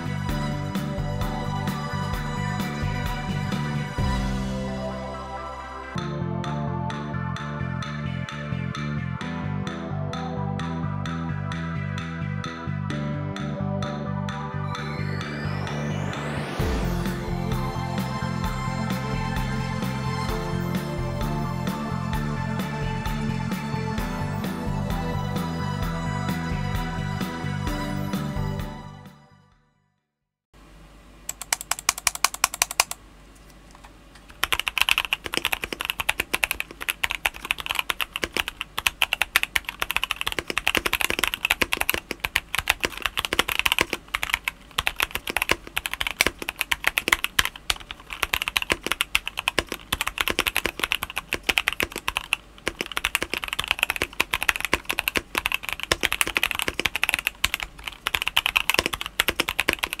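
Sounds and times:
mechanical keyboard typing: 0:31.3 - 0:33.0, 0:34.3 - 1:00.0.

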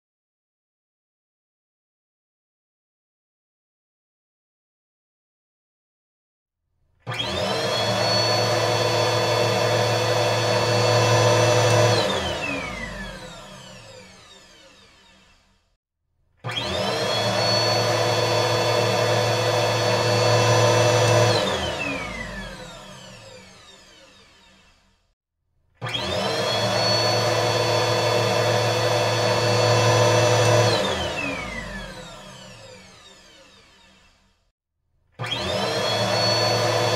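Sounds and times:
stick vacuum cleaner motor whine: 0:07.1 - 0:15.5, 0:16.4 - 0:24.8, 0:25.8 - 0:34.3, 0:35.2 - 0:36.9.

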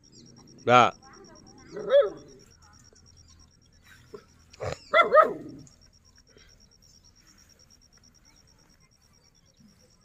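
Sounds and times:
rapid high-pitched ticking: 0:00.0 - 0:04.6, 0:05.6 - 0:10.0.

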